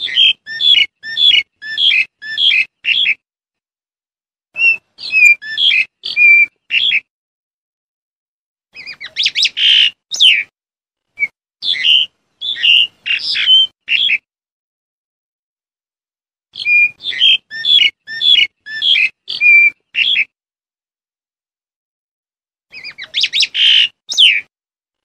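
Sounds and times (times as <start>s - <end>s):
starling calling sharp notes: 0.0s - 3.2s, 4.6s - 7.1s, 8.7s - 10.5s, 11.2s - 14.2s, 16.5s - 20.3s, 22.7s - 24.5s.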